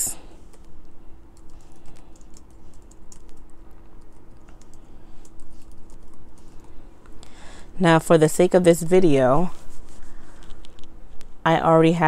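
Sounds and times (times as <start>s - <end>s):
laptop keyboard typing: 0.4s - 6.8s.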